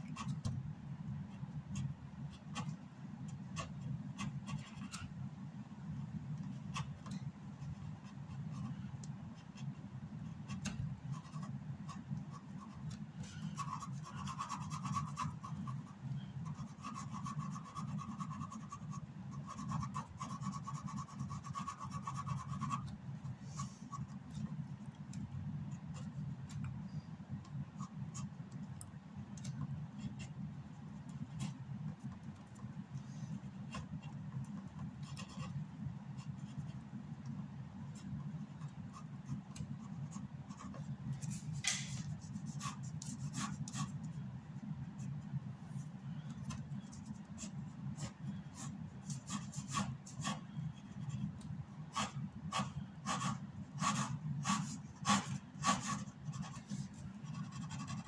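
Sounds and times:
pen scratching on paper: 1.3s - 5.1s, 7.6s - 24.6s, 33.4s - 35.6s, 37.9s - 44.1s, 46.2s - 58.0s.

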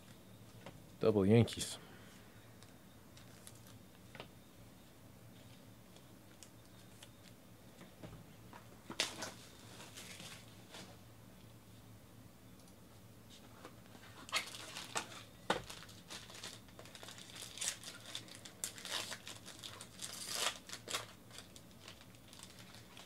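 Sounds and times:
foil wrapper crinkling and tearing: 14.2s - 23.0s.

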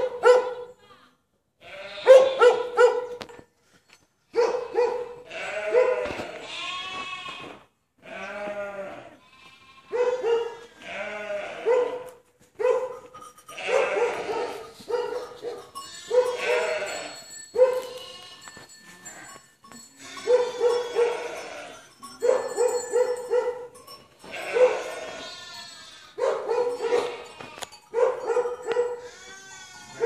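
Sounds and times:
dog barking: 0.0s - 0.7s, 2.0s - 3.3s, 4.3s - 6.2s, 9.9s - 10.7s, 11.4s - 16.7s, 17.6s - 17.9s, 20.2s - 21.3s, 22.2s - 23.8s, 24.5s - 24.9s, 26.2s - 27.2s, 27.9s - 29.1s
sheep bleating: 0.8s - 2.4s, 5.2s - 11.8s, 13.5s - 14.8s, 15.8s - 17.2s, 17.8s - 19.4s, 20.0s - 21.9s, 24.2s - 26.2s, 26.8s - 27.8s, 28.7s - 30.0s.

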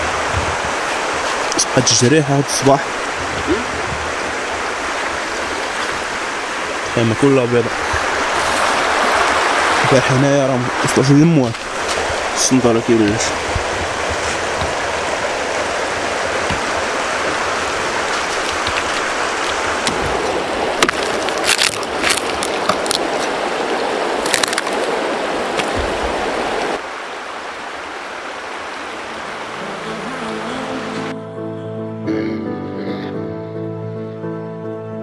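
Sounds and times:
river rushing over stones: 0.0s - 31.1s
firewood cracking: 10.8s - 26.8s.

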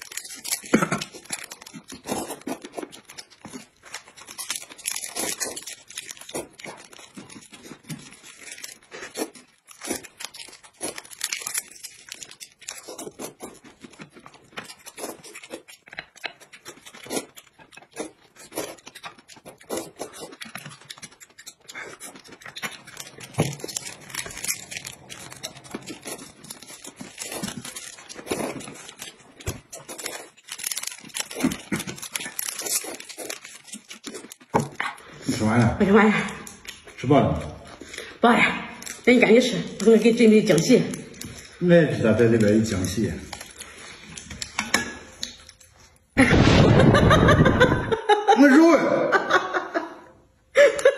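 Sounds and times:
noodles being slurped: 0.0s - 35.6s
plastic packets crinkling: 0.0s - 38.2s, 38.8s - 46.1s.

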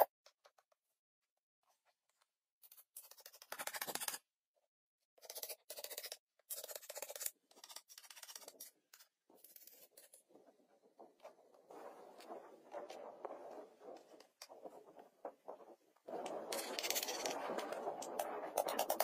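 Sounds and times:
dry wood scraping: 9.3s - 19.0s.

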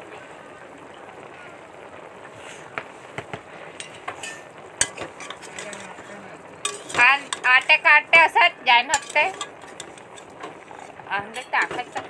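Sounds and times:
metal spoon scraping a pot: 3.8s - 7.9s, 8.9s - 12.0s.

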